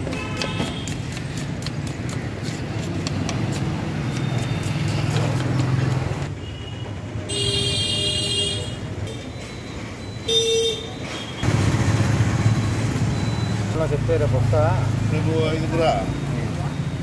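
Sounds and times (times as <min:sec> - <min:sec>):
knife chopping on wooden block: 0:00.0 - 0:06.2
vehicle horn: 0:07.3 - 0:08.8.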